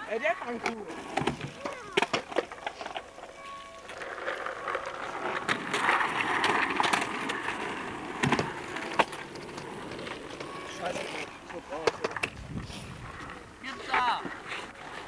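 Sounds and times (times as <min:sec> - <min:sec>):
skateboard rolling on asphalt: 0:00.0 - 0:15.0
skateboard clacks on ramp: 0:03.9 - 0:10.6.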